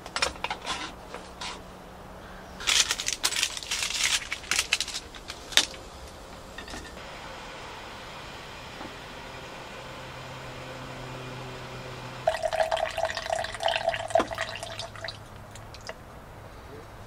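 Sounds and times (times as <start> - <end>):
coffee pouring into metal mug: 12.2 - 15.9.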